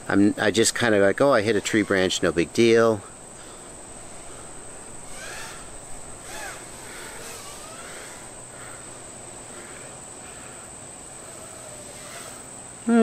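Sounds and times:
high-pitched insect drone: 0.0s - 13.0s
faint rising-and-falling calls: 0.5s - 12.8s.

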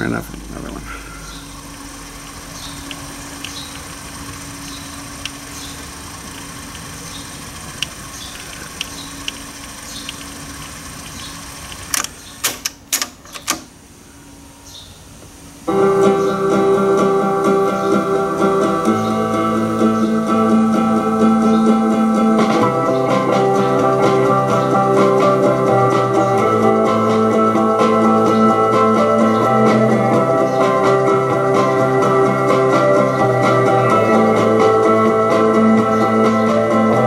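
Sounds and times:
cassette deck tape whirring: 0.0s - 13.8s, 15.1s - 37.0s
cassette mechanism clicks: 7.8s - 13.7s
song playing from cassette: 15.7s - 37.0s.

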